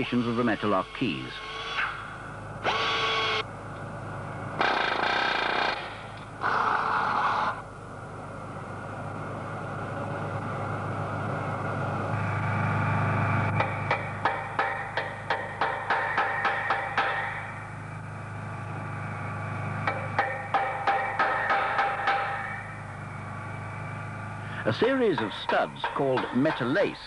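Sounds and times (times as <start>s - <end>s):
steady hum: 0.0s - 27.0s
drill boring into metal: 2.6s - 3.4s, 4.6s - 7.6s.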